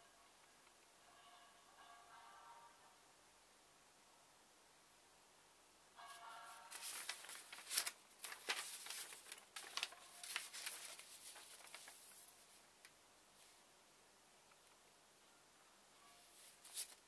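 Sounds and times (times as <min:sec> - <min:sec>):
paper rustling and crinkling: 0:06.1 - 0:12.7, 0:16.4 - 0:17.0.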